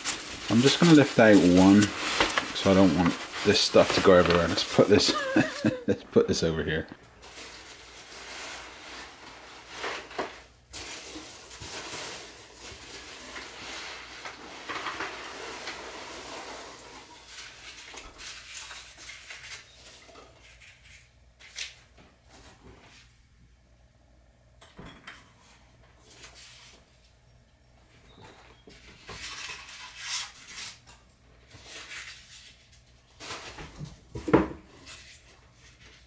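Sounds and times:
cardboard box rustling: 0.0s - 5.7s.

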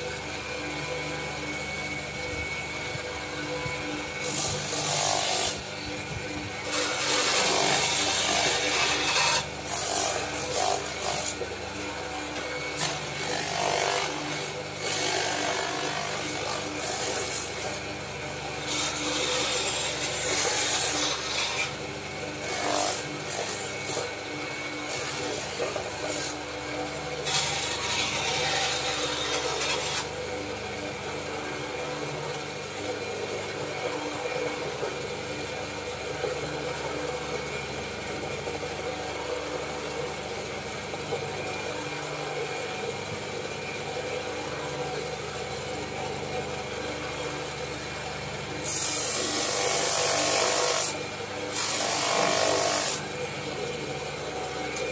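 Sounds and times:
spindle sander running: 0.0s - 54.9s
wood rasping on sanding drum: 6.6s - 11.4s.

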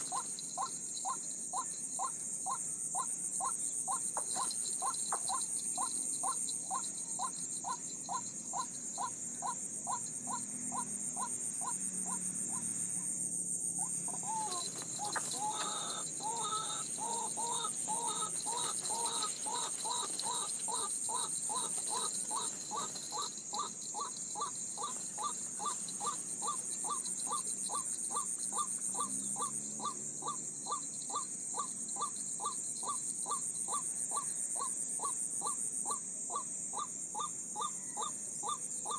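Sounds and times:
bird cawing call: 14.1s - 29.5s.

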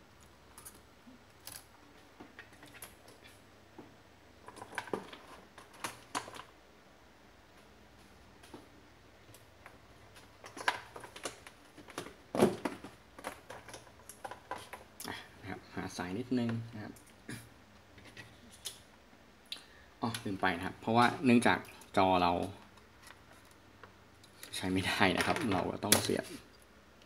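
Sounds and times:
electronics parts clicking and knocking: 4.4s - 6.5s, 9.3s - 15.0s.

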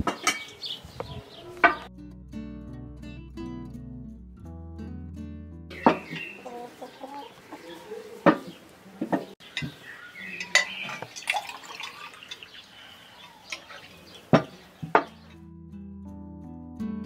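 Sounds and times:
bowls and glassware clinking: 0.1s - 0.8s, 9.6s - 14.0s
hens clucking: 5.7s - 11.1s.

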